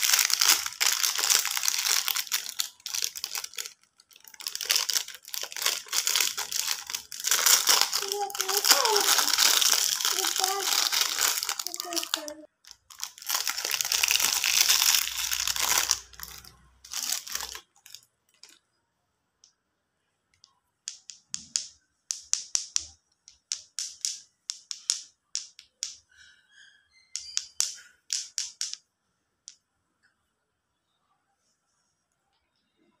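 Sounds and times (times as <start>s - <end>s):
wrappers crackling sharply: 0.0s - 18.0s
plastic wrapper crinkling: 0.0s - 18.6s.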